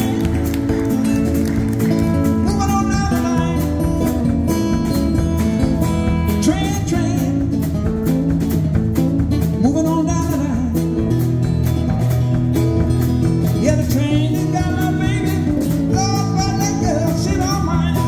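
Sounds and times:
man singing: 0.0 - 1.0, 2.0 - 4.8, 6.0 - 7.9, 9.4 - 11.3, 13.4 - 18.0
drum kit beat: 0.0 - 18.0
strummed acoustic guitars: 0.0 - 18.0
upright bass: 0.0 - 18.0.

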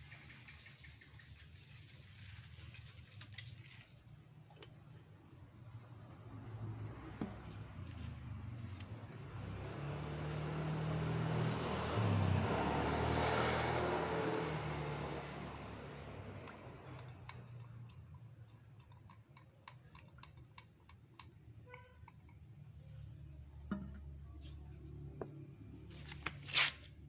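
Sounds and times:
motor vehicle passing by: 5.8 - 17.8.

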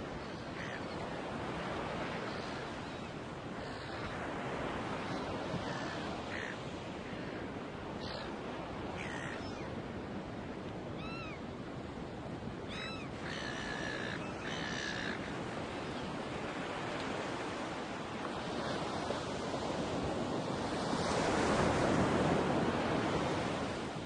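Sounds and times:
ocean surf washing: 0.0 - 24.0
seabirds calling: 0.1 - 9.8, 10.9 - 11.5, 12.6 - 16.6.

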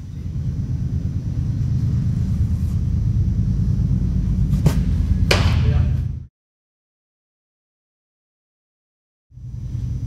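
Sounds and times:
low rumble of indoor hall: 0.0 - 6.3, 9.3 - 10.0
baseball smacking into glove: 4.6 - 5.7.

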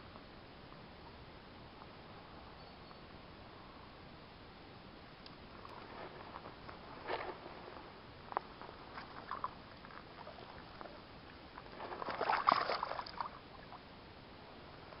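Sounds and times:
water sloshing and dripping: 8.8 - 13.8
fish splashing in water: 11.6 - 13.8.

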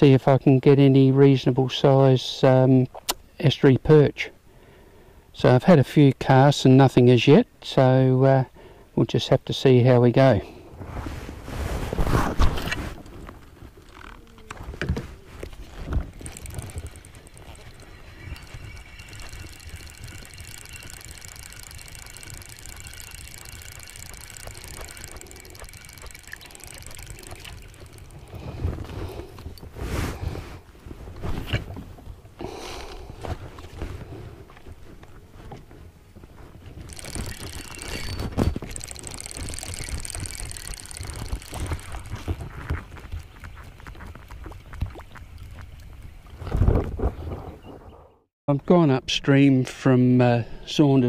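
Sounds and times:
kayak pedal drive whirring: 12.3 - 44.6
soft water splashing: 15.2 - 30.1
distant birds chorus: 16.7 - 28.1.

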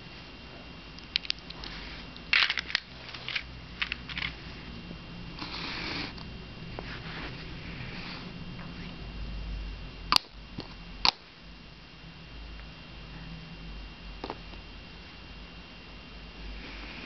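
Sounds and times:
plastic cup sliding on carpet: 6.8 - 8.3.

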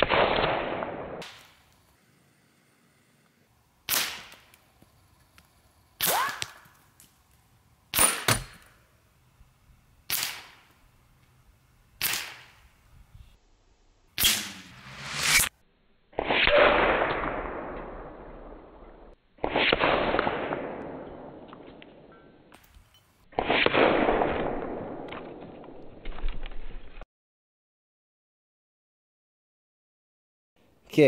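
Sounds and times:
air rifle shots: 0.0 - 1.5, 3.9 - 4.5, 10.1 - 10.7, 12.0 - 12.6, 14.2 - 15.4
pellets striking targets: 3.9 - 4.5, 7.9 - 8.7, 12.0 - 12.6, 14.2 - 15.5
falling whine: 14.2 - 15.5.

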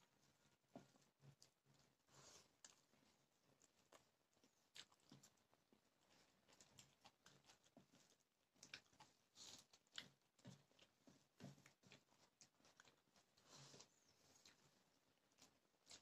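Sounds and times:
person chewing food: 0.0 - 16.0
soft mouth clicks and smacks: 0.8 - 16.0.

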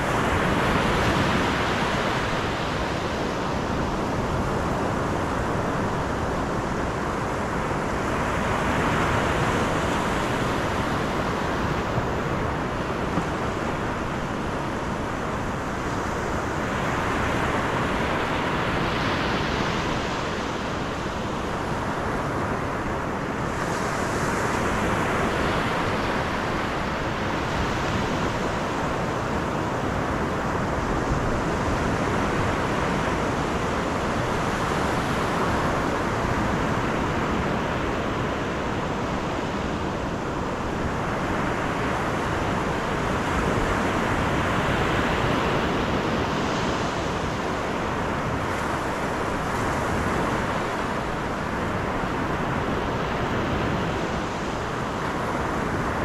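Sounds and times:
car road and wind noise: 0.0 - 56.0.

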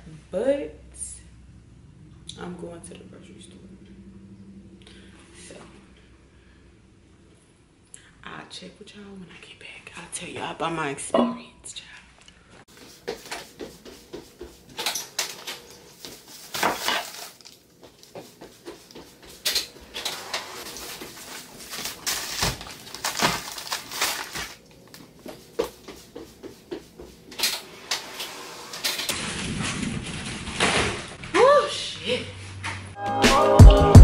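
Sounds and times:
items clunking on tile floor: 12.8 - 31.4
plastic bags rustling: 14.8 - 18.2, 19.4 - 25.6.

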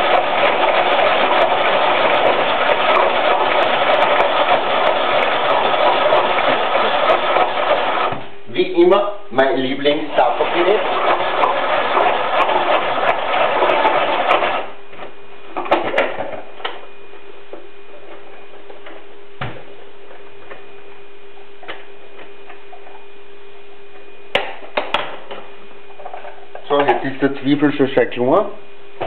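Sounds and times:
food chopper rattling: 0.0 - 8.2, 10.2 - 14.7
steady hum: 0.0 - 29.0.

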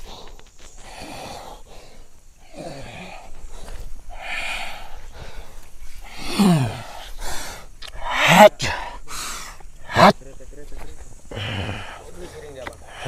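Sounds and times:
man breathing hard and snorting: 0.0 - 10.1, 11.3 - 12.2
man groaning: 2.5 - 3.3, 6.1 - 7.0, 7.9 - 9.0, 9.9 - 10.1.

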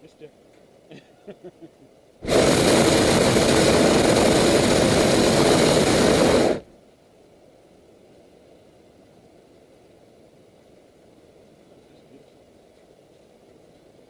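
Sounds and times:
propane burner blast: 2.2 - 6.7.

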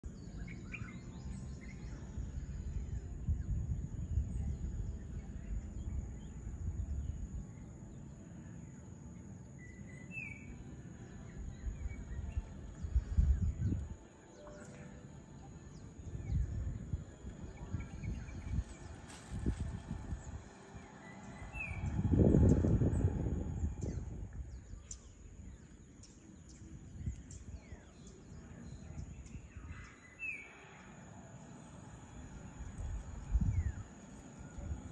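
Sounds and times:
high insect drone: 0.2 - 34.9
low rumble: 11.2 - 14.1, 15.2 - 25.6, 30.5 - 34.9.

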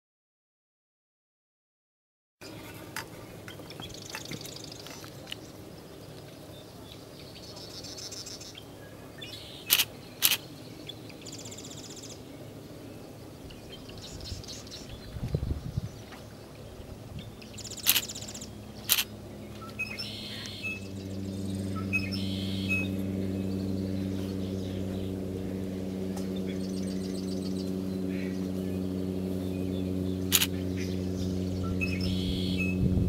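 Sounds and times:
small birds chirping: 2.4 - 32.9
low engine-like hum: 2.4 - 33.0
camera shutter clicks: 9.7 - 10.4, 17.8 - 18.2, 18.9 - 19.1, 30.3 - 30.5.

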